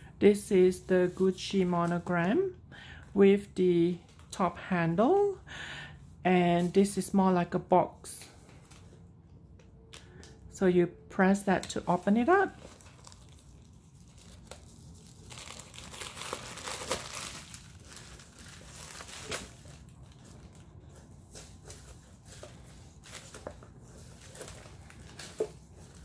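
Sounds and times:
tissue paper rustling: 11.8 - 26.0.

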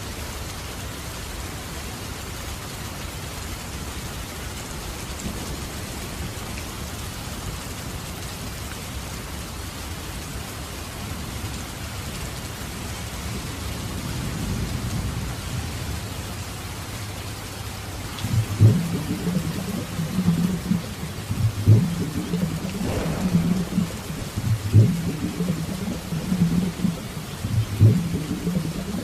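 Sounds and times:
heavy rain falling: 0.0 - 29.0
low rumble: 18.1 - 29.0
loud low sound: 18.2 - 29.0.

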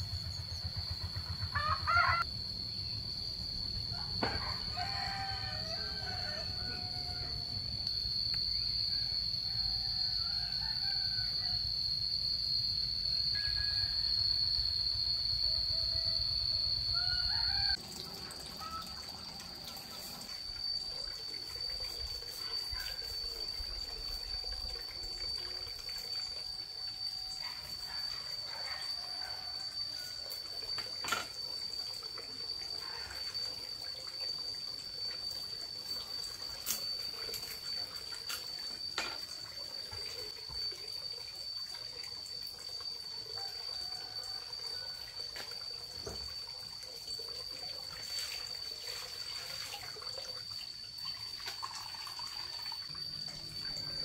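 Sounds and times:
steady high-pitched tone: 11.3 - 33.2
water running and trickling: 17.0 - 54.0.

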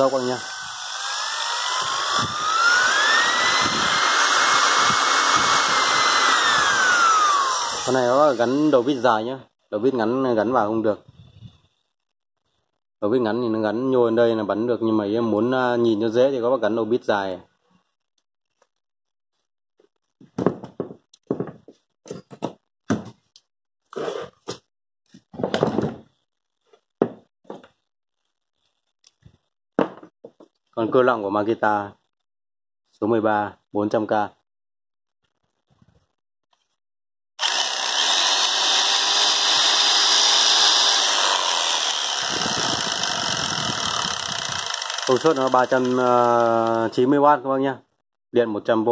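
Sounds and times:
jigsaw motor running: 0.0 - 9.0, 37.4 - 47.1
low buzz: 0.1 - 8.9, 37.4 - 46.0
tools knocking on wooden workbench: 20.2 - 23.2, 27.0 - 27.7, 29.8 - 30.5.

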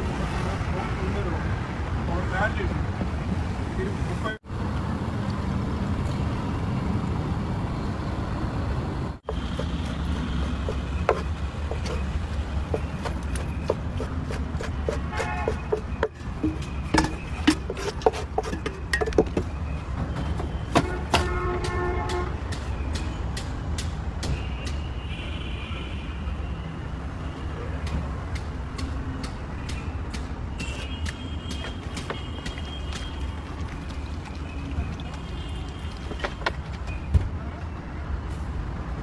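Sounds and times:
knife chopping on wooden board: 9.3 - 12.1, 12.7 - 19.4.

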